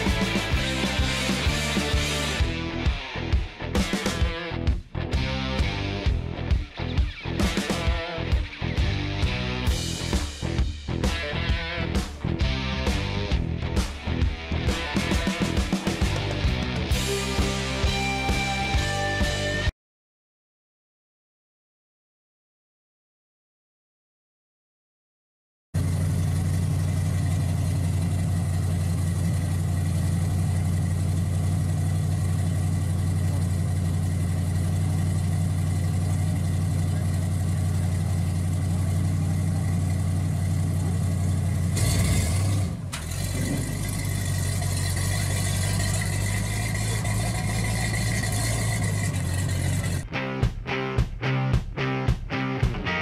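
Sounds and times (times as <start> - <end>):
pickup truck engine idling: 25.8 - 50.0.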